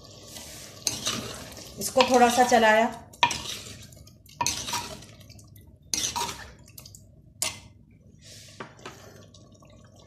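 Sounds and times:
spoon scraping clay pot: 0:00.8 - 0:02.6, 0:03.2 - 0:05.0, 0:05.9 - 0:06.5.

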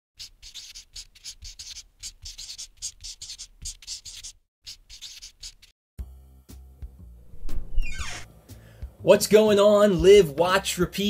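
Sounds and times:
marker pen scratching: 0:00.2 - 0:05.7.

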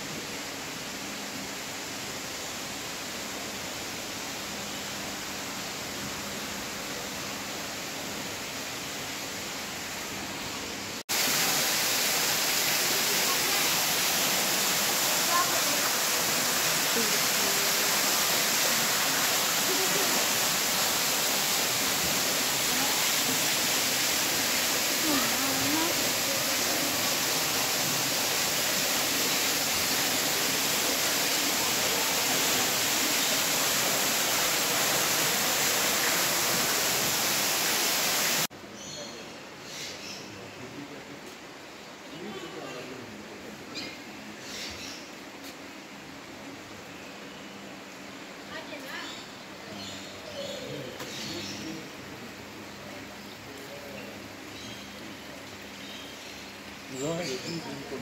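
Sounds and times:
waterfall rushing: 0:09.0 - 0:38.5.

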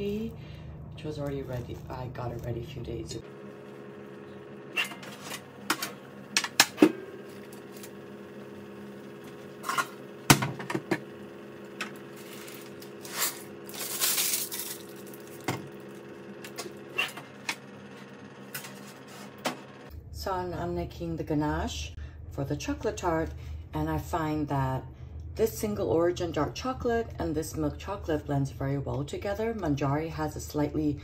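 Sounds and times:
steady hum: 0:00.0 - 0:31.0
ceramic beans rattling in paper: 0:12.2 - 0:15.5.

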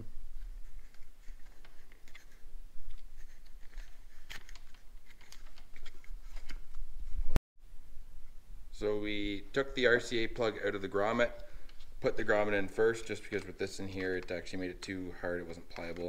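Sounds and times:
rubber grommet creaking and rubbing: 0:00.0 - 0:07.4, 0:10.8 - 0:16.0
low steady hum: 0:00.0 - 0:16.0.

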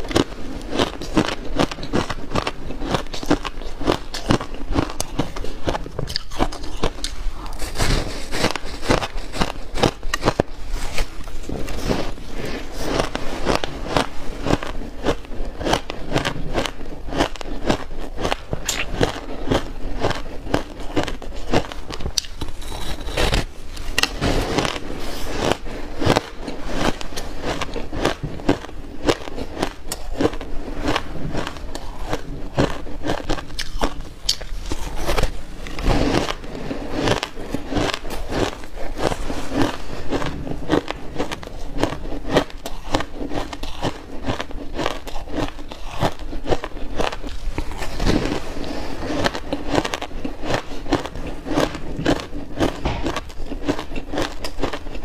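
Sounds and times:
ice being bitten and chewed: 0:00.0 - 0:55.0.

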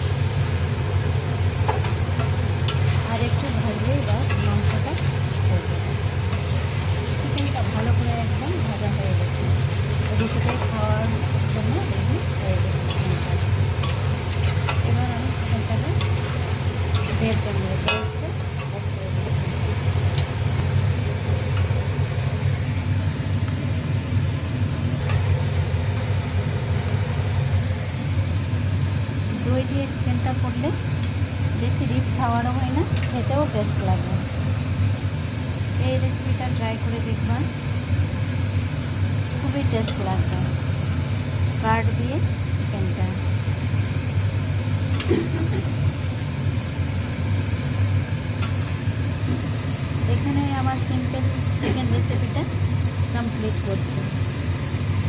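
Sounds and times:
low hum: 0:00.0 - 0:55.0
metal spatula clicking on pan: 0:12.8 - 0:14.9, 0:16.0 - 0:18.8, 0:32.9 - 0:33.2, 0:39.8 - 0:40.1.

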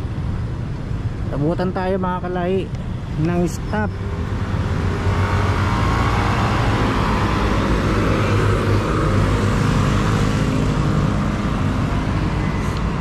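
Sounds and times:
road traffic rumble: 0:00.0 - 0:13.0
wind rushing: 0:02.9 - 0:13.0.

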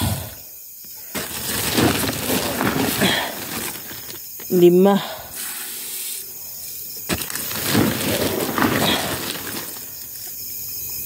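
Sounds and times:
granular fertilizer scraping: 0:01.0 - 0:10.5
plastic scoop digging in sack: 0:01.1 - 0:04.3, 0:07.0 - 0:10.3.

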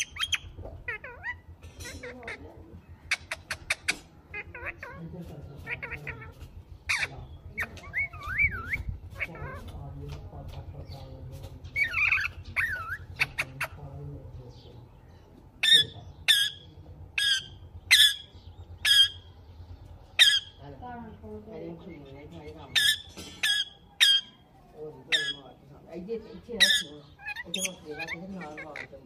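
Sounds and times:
parakeets chirping and warbling: 0:00.0 - 0:29.0
parakeet harsh squawks: 0:03.0 - 0:05.0, 0:05.6 - 0:09.6, 0:15.6 - 0:19.3, 0:20.1 - 0:20.6, 0:22.7 - 0:24.4, 0:25.1 - 0:25.5, 0:26.5 - 0:29.0.

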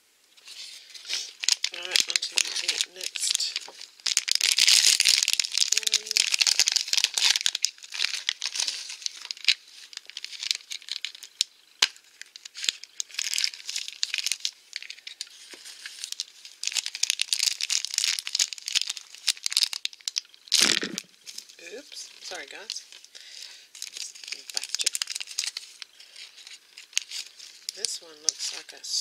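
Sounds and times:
wrapper crinkling: 0:00.4 - 0:29.0.

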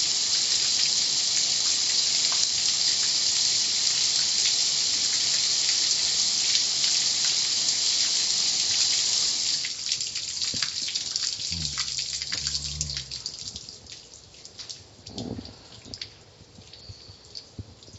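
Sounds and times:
water dripping: 0:09.5 - 0:17.9
low hum: 0:11.5 - 0:13.4.

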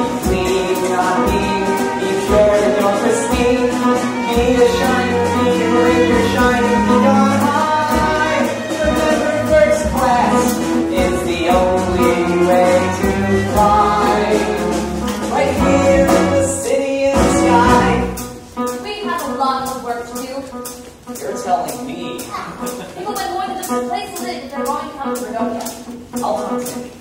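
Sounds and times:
person singing: 0:00.0 - 0:18.3
steady drum beat: 0:00.0 - 0:26.8
pit orchestra playing: 0:00.0 - 0:27.0.

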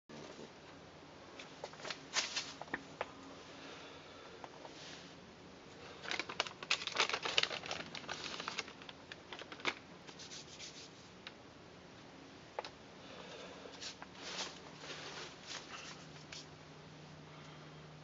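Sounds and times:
crinkly bag rustling: 0:05.9 - 0:10.4
hands rubbing together: 0:10.1 - 0:11.1, 0:13.8 - 0:16.5.

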